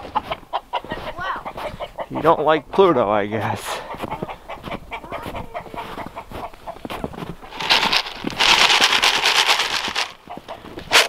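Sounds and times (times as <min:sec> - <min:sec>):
footsteps crunching in snow: 0:00.0 - 0:11.0
feed pellets pouring from bag: 0:07.5 - 0:10.2.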